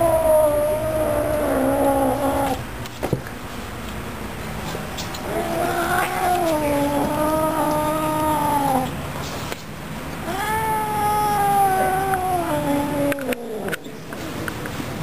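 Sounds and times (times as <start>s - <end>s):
cat yowling angrily: 5.3s - 8.9s, 10.2s - 13.8s.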